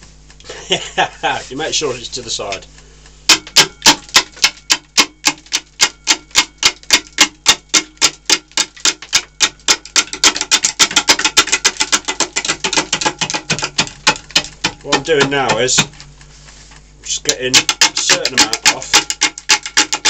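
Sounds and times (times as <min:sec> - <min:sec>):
lathe tool knocking on spinning log: 0:03.3 - 0:16.0, 0:17.1 - 0:20.0.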